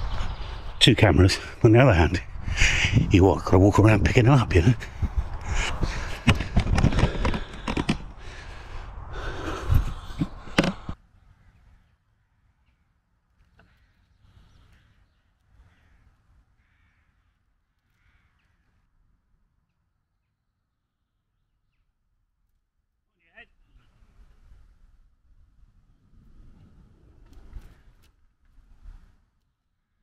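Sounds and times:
faint birds calling: 0.0 - 22.0
camera handling rustling and knocking: 5.9 - 8.2, 10.1 - 11.0.

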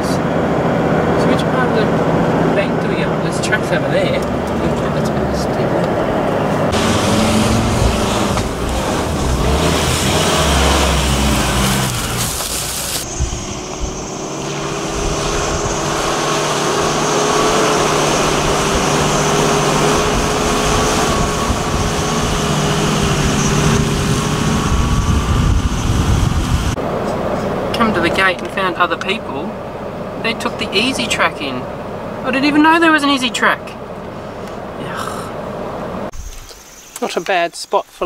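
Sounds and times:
off-road vehicle engine running: 0.0 - 36.2.

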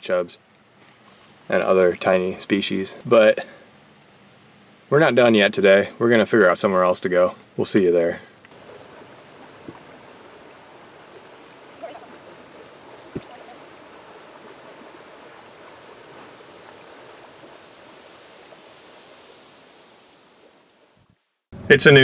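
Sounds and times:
creek water running: 4.9 - 21.1
faint thin high tone: 9.1 - 13.6.

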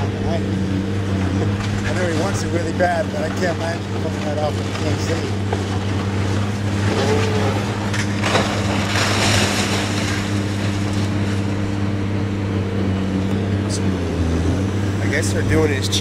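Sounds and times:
crunching crashing debris: 0.0 - 12.4
excavator engine running: 0.0 - 16.0.

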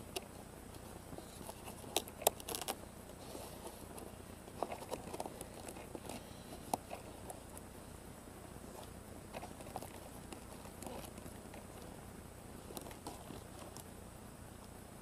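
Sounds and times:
hands handling foam plane: 0.0 - 7.7.

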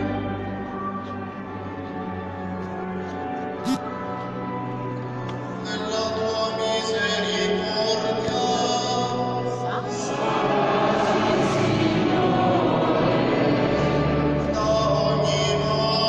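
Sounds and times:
choir singing: 9.6 - 16.0.

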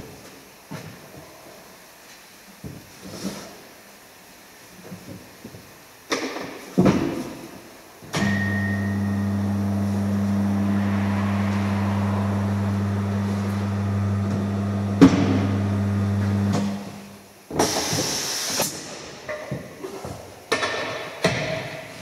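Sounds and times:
turntable motor humming: 8.2 - 17.0
compressed air hiss: 17.6 - 18.8.

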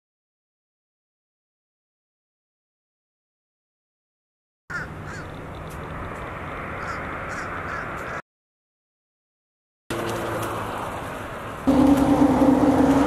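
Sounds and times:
outdoor background noise: 4.7 - 8.2, 9.9 - 13.0
harsh bird calls: 6.8 - 8.2.

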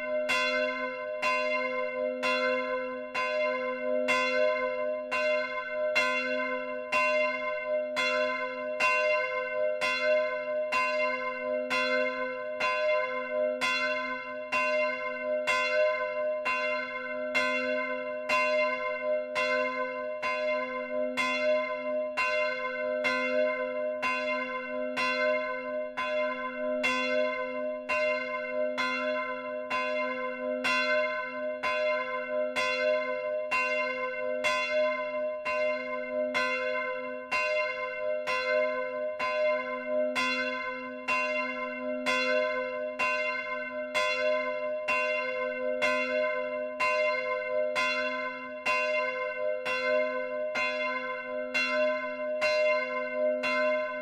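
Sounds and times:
church bell ringing: 0.0 - 54.0.

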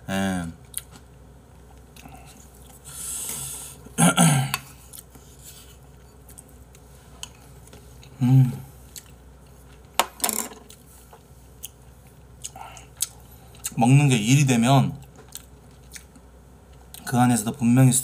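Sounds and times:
hummed grunts: 4.0 - 4.6, 8.1 - 8.7
chewing: 8.9 - 9.8, 11.6 - 13.8, 15.0 - 17.1.

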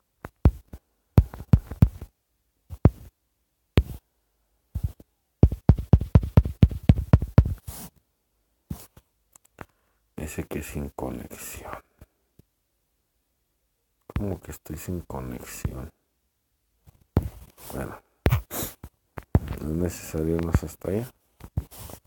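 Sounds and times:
fingertip taps on touchscreen: 1.2 - 2.1, 4.8 - 7.6.

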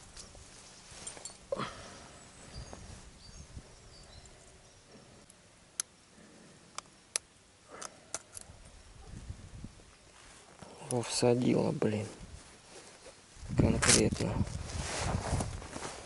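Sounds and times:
distant birds chirping: 0.0 - 9.2.

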